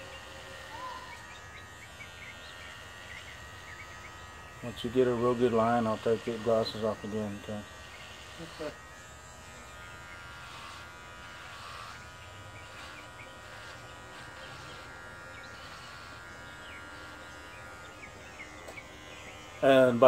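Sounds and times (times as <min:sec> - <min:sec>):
electric hair clippers buzzing: 0:00.0 - 0:20.0.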